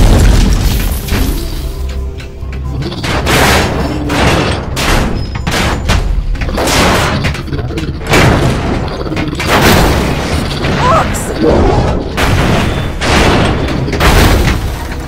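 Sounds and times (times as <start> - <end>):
loud booms and crashing impacts: 0.0 - 1.6, 3.0 - 15.0.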